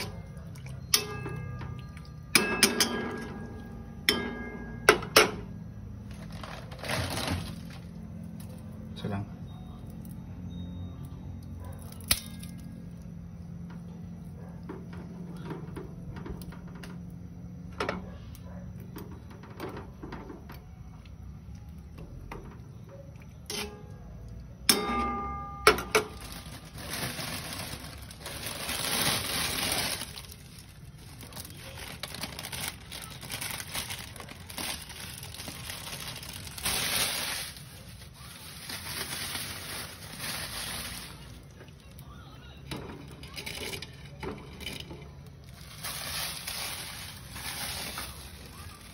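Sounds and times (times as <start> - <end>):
ringing metal clink: 0.8 - 5.2, 11.9 - 12.8, 24.7 - 26.1
hissing and crackling frying: 26.2 - 41.9, 45.4 - 48.9.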